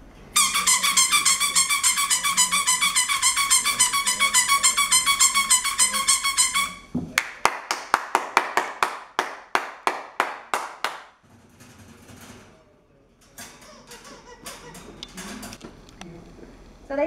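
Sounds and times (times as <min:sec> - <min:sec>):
pulsing shrill horn noisemaker: 0:00.4 - 0:06.9
ringing noisemaker clacks: 0:00.4 - 0:06.9.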